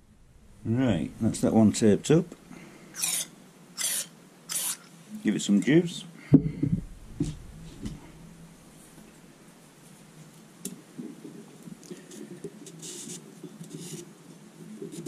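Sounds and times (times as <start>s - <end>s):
short scraping strokes: 2.9s - 4.9s
abrasive paper rubbing metal: 3.0s - 4.9s.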